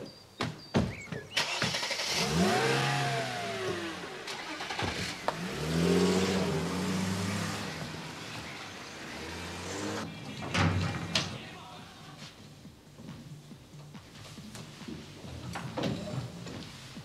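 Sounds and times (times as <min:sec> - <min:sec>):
car engine accelerating: 0:01.4 - 0:10.1.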